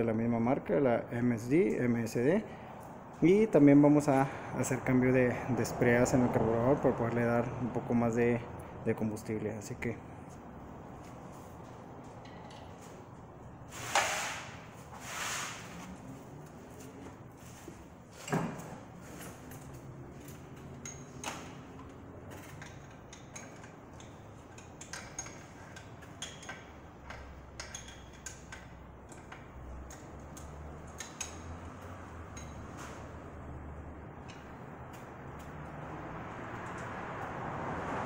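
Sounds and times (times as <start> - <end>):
metallic clicks of hand tools: 20.5 - 32.7.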